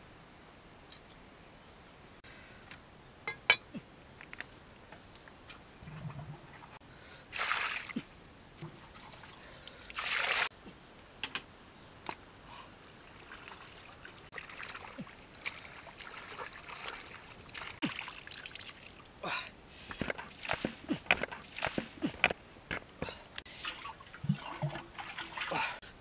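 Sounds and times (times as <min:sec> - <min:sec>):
water splashing and trickling: 0:05.2 - 0:10.5, 0:12.5 - 0:22.1, 0:23.0 - 0:25.9
water dripping: 0:12.8 - 0:19.4, 0:23.0 - 0:25.8
rushes of water: 0:12.9 - 0:19.3, 0:23.5 - 0:25.8.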